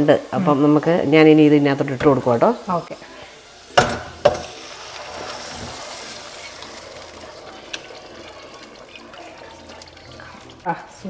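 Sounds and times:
food sizzling in a pan: 0:00.0 - 0:11.0
metal pots clunking: 0:01.8 - 0:02.6, 0:03.7 - 0:10.8.

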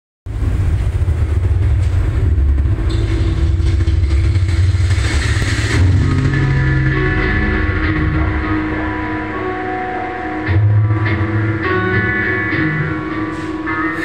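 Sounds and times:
deep steady rumble: 0:00.3 - 0:09.8
sustained musical notes: 0:01.0 - 0:14.0.

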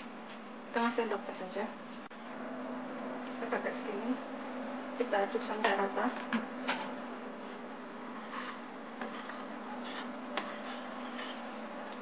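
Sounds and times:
steady low hum: 0:00.0 - 0:12.0
spoon stirring rice and flour: 0:07.4 - 0:12.0.

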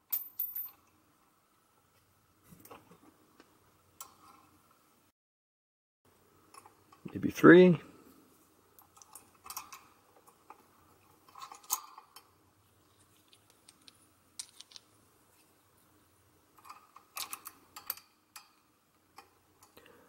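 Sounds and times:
small washers and bolt clinking: 0:00.0 - 0:01.0, 0:06.5 - 0:07.2, 0:08.8 - 0:15.6, 0:16.5 - 0:19.9.

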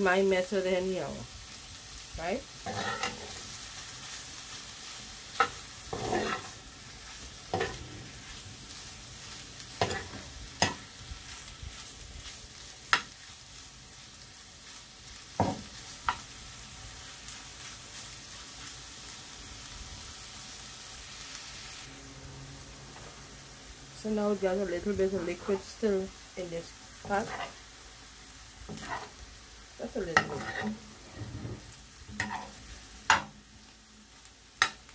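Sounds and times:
shrimp sizzling in a pan: 0:00.0 - 0:34.9
metal spoon scraping a pan: 0:02.6 - 0:03.4, 0:05.3 - 0:06.6, 0:07.5 - 0:08.2, 0:09.8 - 0:10.8, 0:27.0 - 0:27.6, 0:28.7 - 0:29.2, 0:30.0 - 0:33.3.

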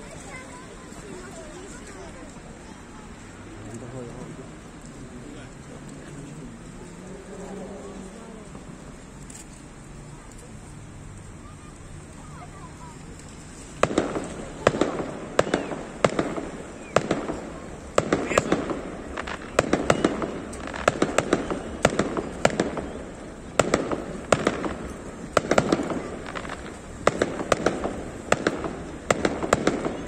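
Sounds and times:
fireworks bursting with crackle: 0:11.4 - 0:30.0.

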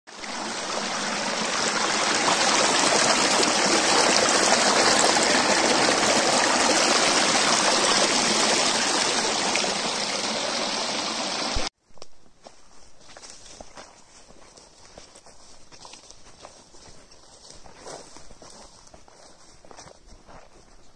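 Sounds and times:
stream rushing over rocks: 0:00.1 - 0:11.7.

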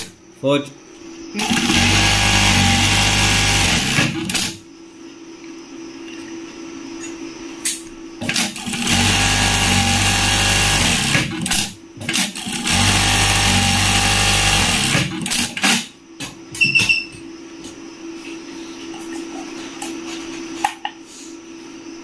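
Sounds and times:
sewing machine running: 0:01.4 - 0:04.6, 0:08.2 - 0:15.9.

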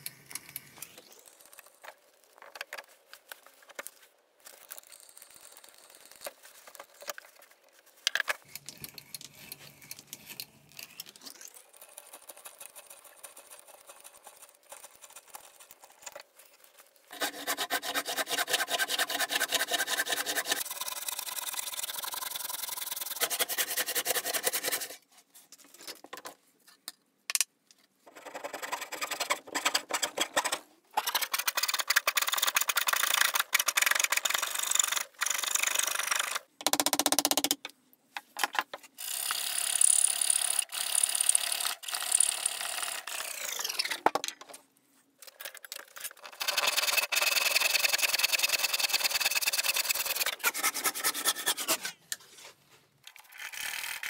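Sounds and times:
handsaw rasping through wood: 0:17.1 - 0:20.7, 0:49.9 - 0:51.9
coping saw cutting: 0:17.1 - 0:20.8, 0:43.0 - 0:44.0, 0:49.4 - 0:52.0
auger bit boring into wood: 0:39.0 - 0:44.1.

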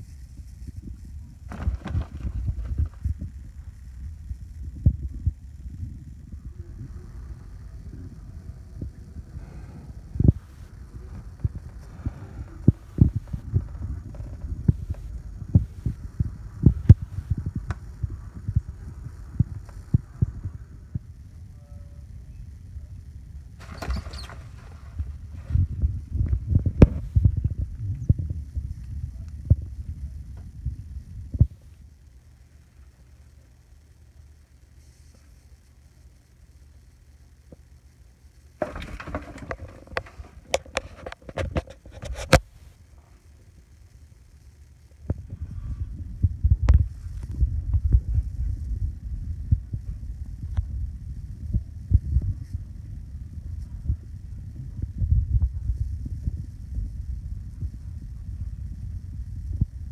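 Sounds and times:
rustling: 0:00.0 - 0:04.5, 0:23.6 - 0:27.2, 0:38.6 - 0:43.4
microphone handling thumps: 0:00.0 - 0:06.9, 0:07.8 - 0:21.1, 0:23.6 - 0:28.7, 0:38.6 - 0:42.5
low rumble: 0:00.0 - 0:34.5, 0:38.3 - 0:59.9.

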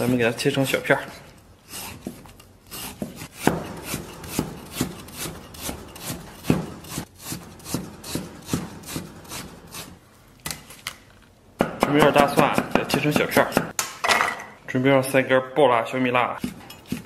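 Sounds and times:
cleaver slicing meat on wooden board: 0:01.7 - 0:09.9.

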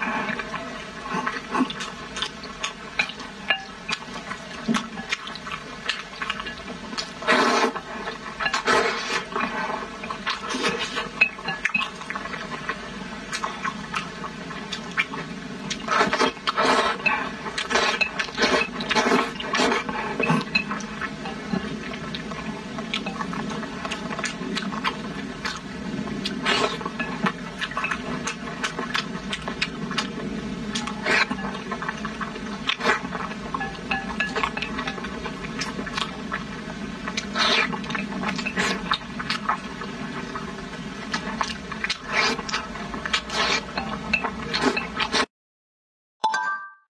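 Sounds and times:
wet chewing and lip-smacking: 0:00.3 - 0:07.8, 0:10.1 - 0:36.4, 0:37.1 - 0:40.5, 0:41.1 - 0:45.3
slurping noodles: 0:07.2 - 0:11.1, 0:14.8 - 0:20.6, 0:26.2 - 0:26.9, 0:37.0 - 0:40.4, 0:41.1 - 0:45.3.

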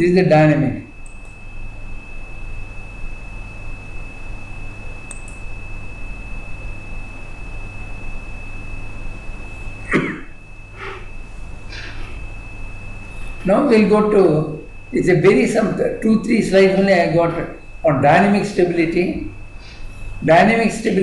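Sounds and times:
high-pitched electrical whine: 0:00.0 - 0:21.0
low mains hum: 0:00.0 - 0:21.0.

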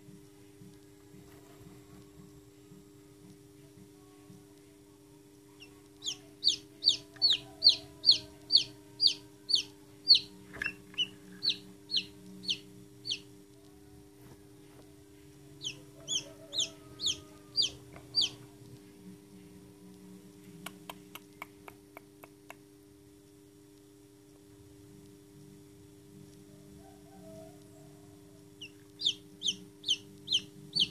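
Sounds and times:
chick peeping: 0:05.6 - 0:13.2, 0:15.6 - 0:18.5, 0:28.6 - 0:30.9.

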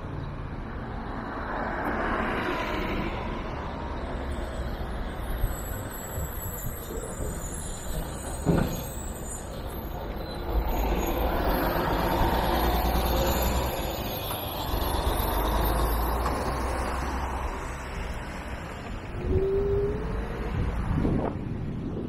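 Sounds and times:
city street traffic: 0:00.0 - 0:22.0
wind rumble on microphone: 0:18.8 - 0:22.0.

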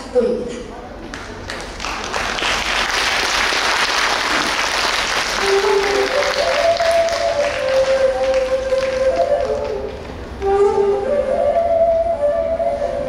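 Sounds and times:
audience applauding: 0:01.1 - 0:10.2
instrument playing long held notes: 0:04.7 - 0:13.0.

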